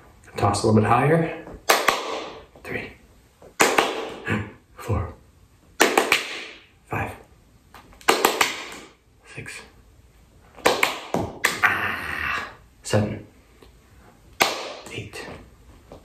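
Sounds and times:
hand claps: 1.6s - 2.4s, 3.5s - 4.2s, 5.8s - 6.7s, 7.8s - 9.0s, 10.6s - 11.7s, 14.4s - 15.0s.

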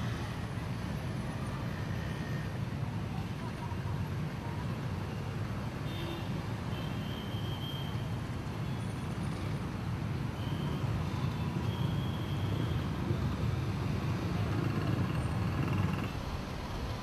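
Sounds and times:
city traffic rumble: 0.0s - 17.0s.

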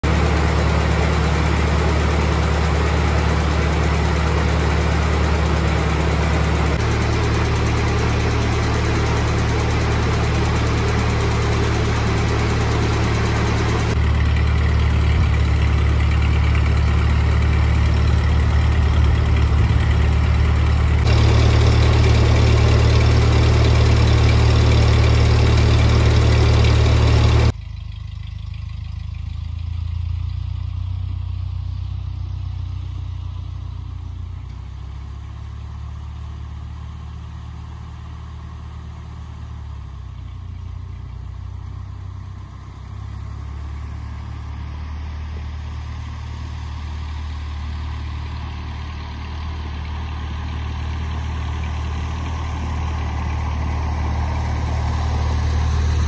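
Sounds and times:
tractor engine idling: 0.0s - 56.0s.

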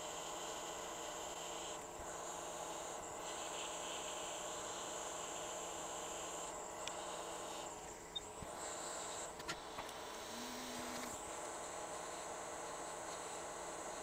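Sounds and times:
hot air station hiss and whine: 0.0s - 14.0s.

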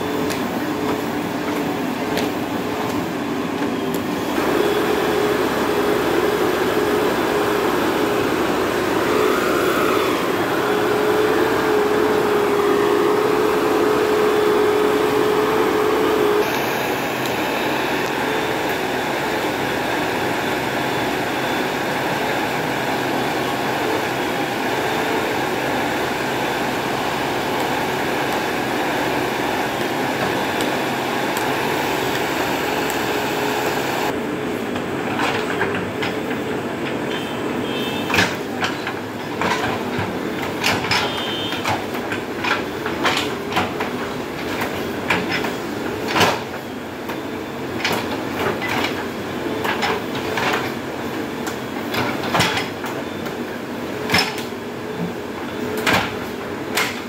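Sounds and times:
diesel engine running: 0.0s - 35.6s
steady high tone: 3.7s - 34.2s.

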